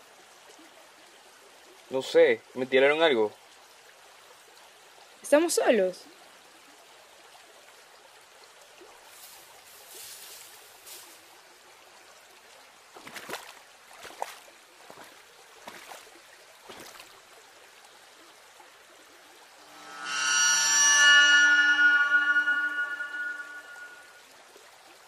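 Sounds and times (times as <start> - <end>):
faint rush of flowing water: 0.0 - 25.0
footsteps splashing through stream: 12.8 - 17.4.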